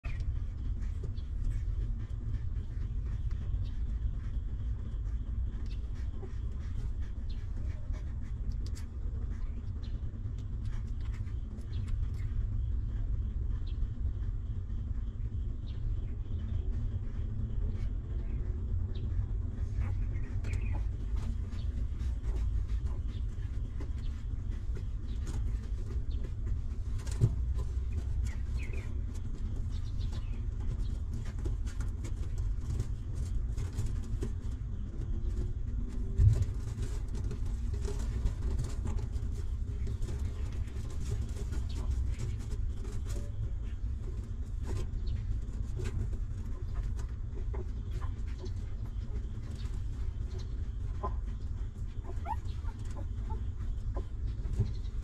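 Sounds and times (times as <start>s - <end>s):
puppies squeaking: 51.9s - 54.1s.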